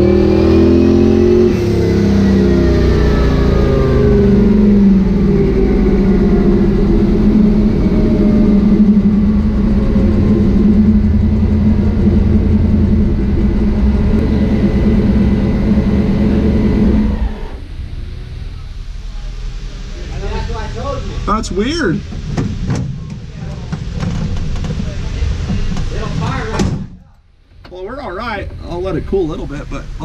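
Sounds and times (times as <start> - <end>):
car engine running on dyno: 0.0 - 26.7.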